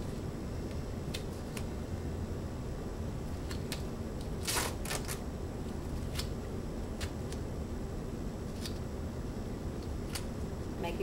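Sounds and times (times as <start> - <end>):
tape ripping: 4.4 - 5.2
tape crinkling clicks: 8.5 - 8.8.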